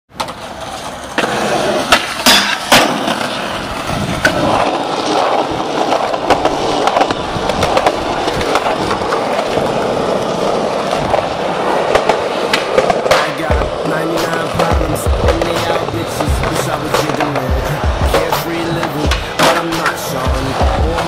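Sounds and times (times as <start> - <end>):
skateboard clacks: 0.1 - 21.0
skateboard wheels rolling on concrete: 0.1 - 21.0.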